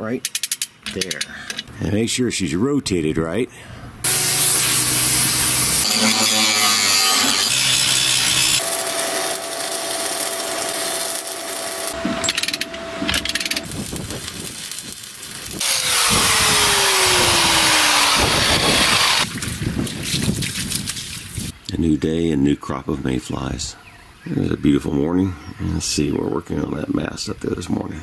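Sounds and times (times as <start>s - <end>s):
angle grinder cutting steel: 4.0s - 13.7s, 15.6s - 19.3s.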